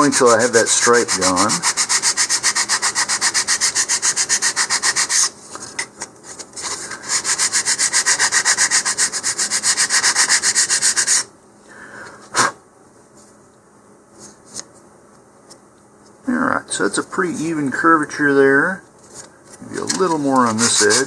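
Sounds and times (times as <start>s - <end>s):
sanding block rubbing wood: 0.0s - 5.3s, 7.0s - 11.3s, 20.0s - 21.0s.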